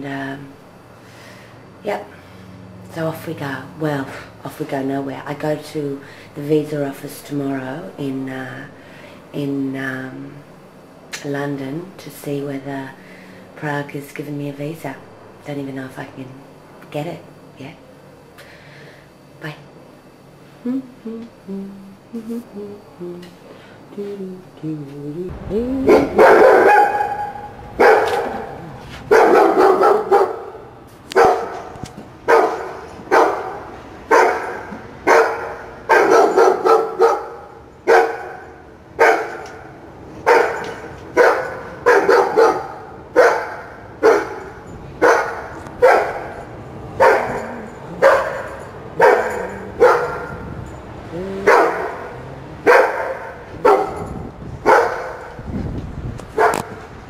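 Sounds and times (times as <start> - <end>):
dog barking: 25.9 - 39.6, 40.2 - 46.4, 47.0 - 50.5, 51.4 - 55.4, 56.4 - 56.8.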